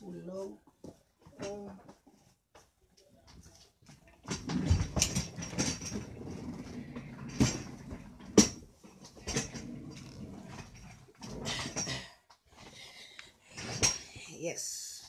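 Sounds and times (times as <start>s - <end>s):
chair bumping and scraping: 3.4s - 12.7s, 13.5s - 14.1s.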